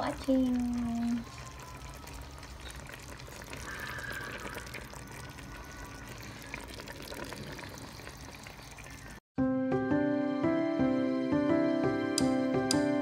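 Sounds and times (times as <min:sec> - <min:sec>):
sauce simmering in a pot: 0:00.0 - 0:09.2
soft music with held notes: 0:09.4 - 0:13.0.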